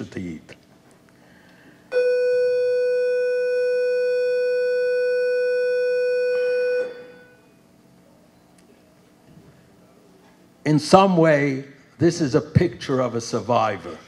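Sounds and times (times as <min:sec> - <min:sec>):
steady electronic tone: 0:01.9 - 0:07.7.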